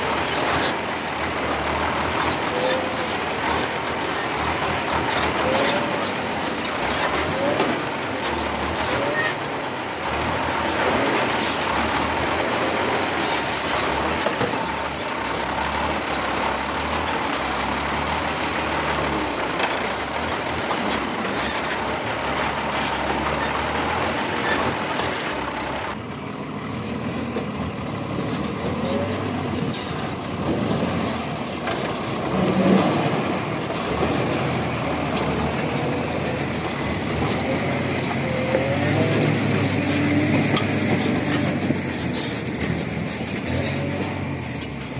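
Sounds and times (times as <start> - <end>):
truck engine and running gear rumbling: 0.0 - 44.9.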